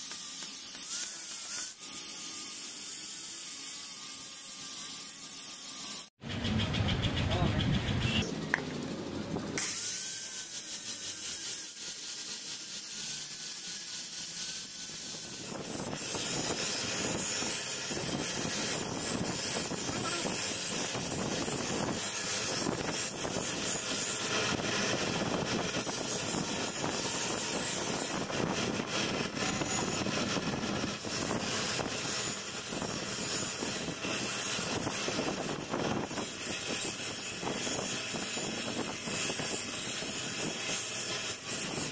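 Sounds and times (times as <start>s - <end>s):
grinding wheel grinding steel: 0.0s - 41.9s.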